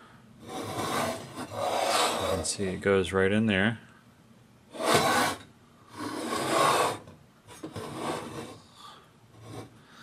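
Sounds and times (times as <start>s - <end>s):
metal base scraping on tabletop: 0.4s - 2.6s, 4.7s - 8.7s, 9.4s - 9.8s.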